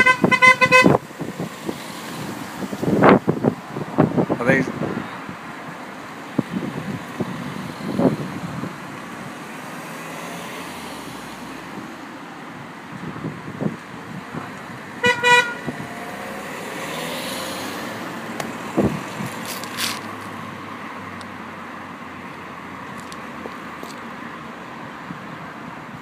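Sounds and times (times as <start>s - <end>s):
car horn toots: 0.0s - 1.0s, 15.0s - 15.7s
car driving past: 7.2s - 12.0s, 14.9s - 21.4s.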